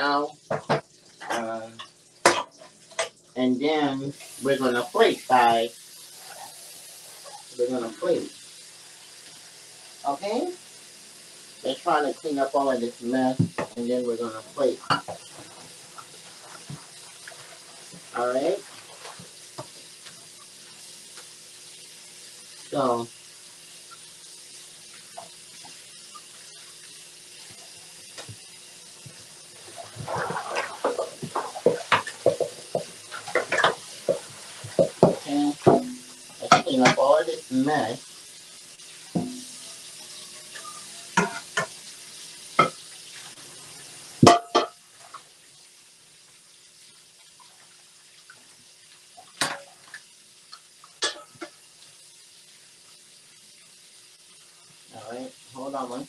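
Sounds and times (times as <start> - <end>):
tap water running into sink: 0.4 - 3.3, 11.6 - 56.0
dishes clanking: 0.5 - 3.2, 14.8 - 15.4, 29.7 - 37.1, 39.2 - 39.5, 40.6 - 41.7, 44.2 - 44.8, 51.0 - 51.6
pot clattering and scraping: 29.6 - 37.1, 40.6 - 41.8, 51.0 - 51.6
tap running into steel sink: 39.2 - 39.5.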